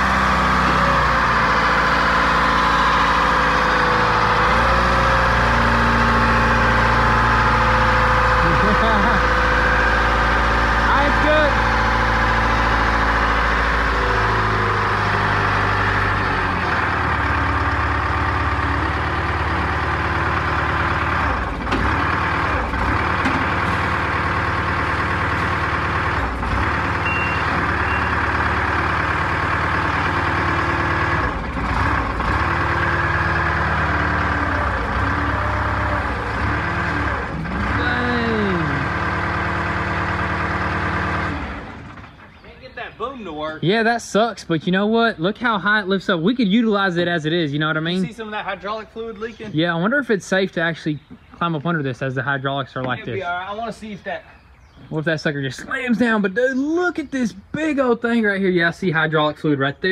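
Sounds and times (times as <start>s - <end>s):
diesel engine running under load: 0.0s - 43.6s.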